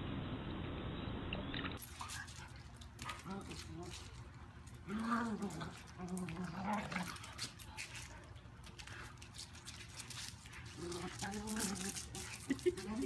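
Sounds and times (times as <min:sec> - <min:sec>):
puppy growling: 0:04.8 - 0:07.6, 0:10.2 - 0:13.0.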